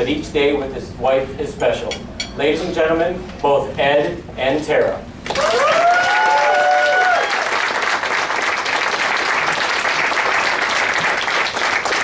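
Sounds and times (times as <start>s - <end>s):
high cheers: 5.3s - 7.8s
crowd applauding: 5.3s - 12.0s.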